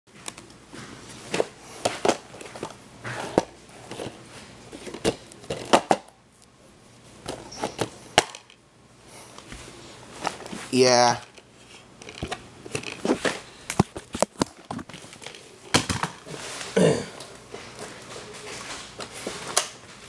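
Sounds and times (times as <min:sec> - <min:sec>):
plastic case rubbing and rustling: 0:10.2 - 0:16.4.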